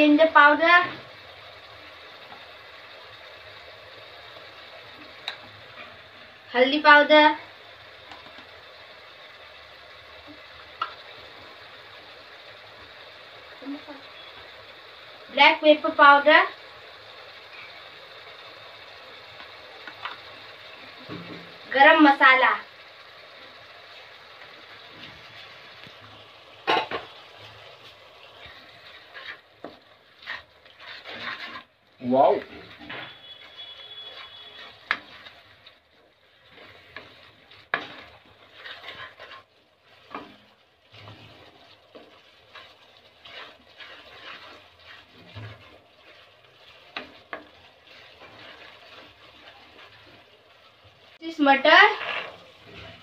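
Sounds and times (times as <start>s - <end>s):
curry sizzling in pan: 0.0s - 53.0s
spatula scraping pan: 26.7s - 53.0s
wooden spatula stirring: 26.9s - 53.0s.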